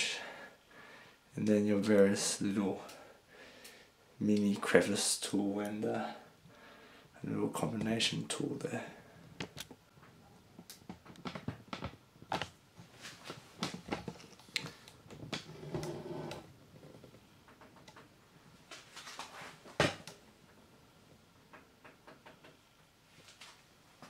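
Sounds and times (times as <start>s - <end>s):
soft handling clicks and knocks: 9.3s - 15.5s, 16.3s - 23.6s.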